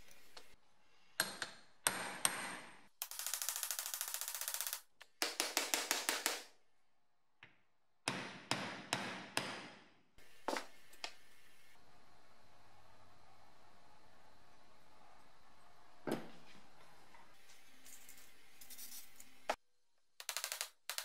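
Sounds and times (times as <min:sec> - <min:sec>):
hammer striking metal punch: 0:08.1 - 0:09.9.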